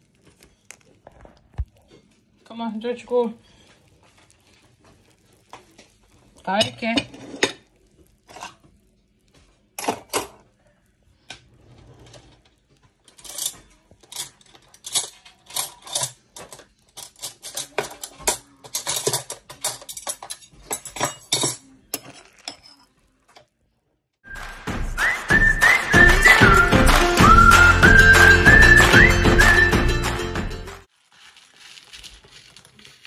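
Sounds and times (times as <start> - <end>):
metal spoon clinking in a bowl: 13.2 - 23.0
music: 24.3 - 30.9.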